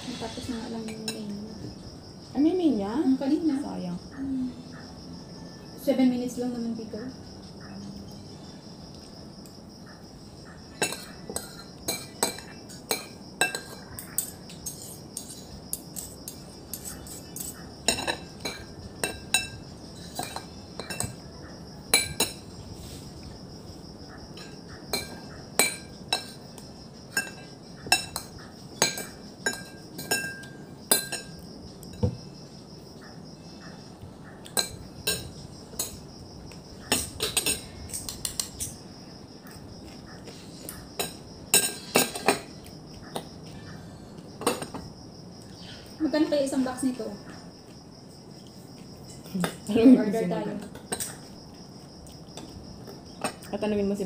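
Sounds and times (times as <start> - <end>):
high insect trill: 0.0 - 54.0
metal spoon clinking on a dish: 10.8 - 21.2, 27.1 - 31.4, 34.5 - 36.0, 36.9 - 38.8, 41.0 - 42.5.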